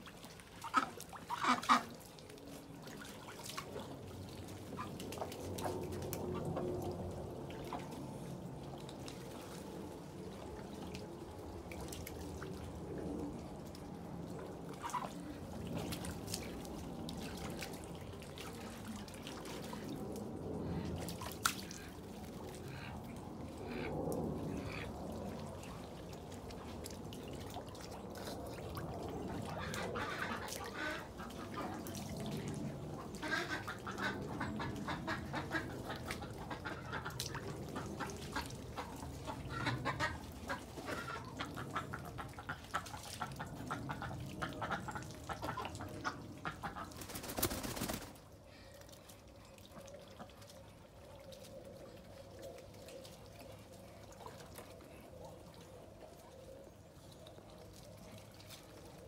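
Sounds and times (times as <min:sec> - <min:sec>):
water dripping: 0:00.0 - 0:47.2
ducks splashing in water: 0:00.0 - 0:59.0
soft duck sounds: 0:21.6 - 0:25.7.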